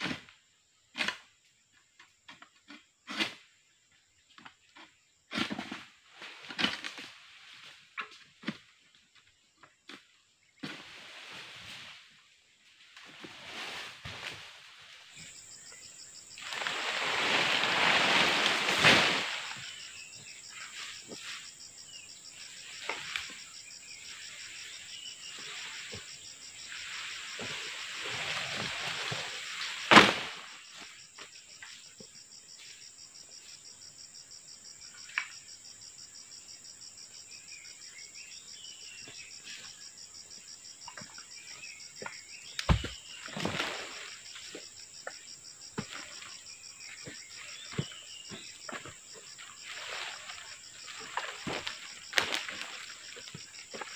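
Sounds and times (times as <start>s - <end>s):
insects droning: 0.0s - 53.9s
long rustling sweep: 16.4s - 19.5s.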